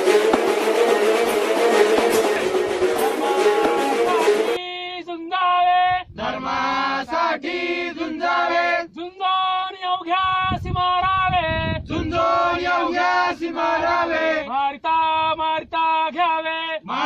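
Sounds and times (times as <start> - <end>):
instrumental notes: 0.0 - 4.6
men chanting in unison: 6.2 - 9.0, 11.9 - 16.2, 16.8 - 17.0.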